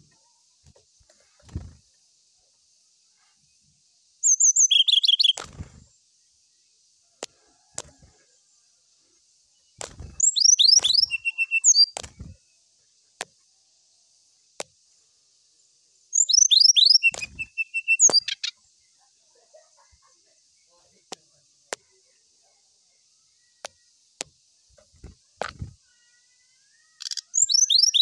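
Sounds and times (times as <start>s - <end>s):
bird singing whistles and trill: 4.2s - 5.4s, 10.0s - 12.4s, 16.1s - 18.6s, 26.5s - 28.0s.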